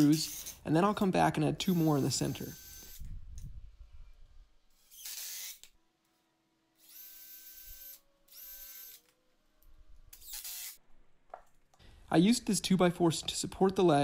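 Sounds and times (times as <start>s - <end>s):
cordless drill motor whine: 0.2s - 0.6s, 1.7s - 3.1s, 4.8s - 5.7s, 6.8s - 9.1s, 10.2s - 10.8s.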